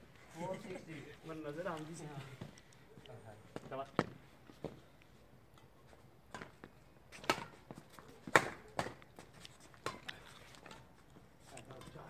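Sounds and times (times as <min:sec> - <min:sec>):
rackets hitting shuttlecock: 0:06.3 - 0:09.2, 0:09.8 - 0:10.9.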